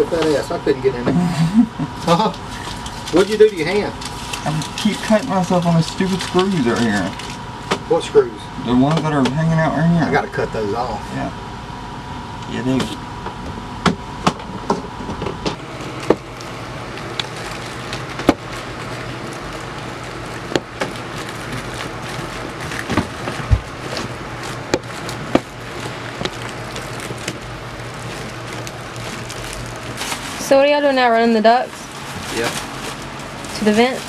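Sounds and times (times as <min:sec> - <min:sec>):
steady low hum: 0:00.0 - 0:34.0
foil duct clicking and knocking: 0:13.8 - 0:30.6.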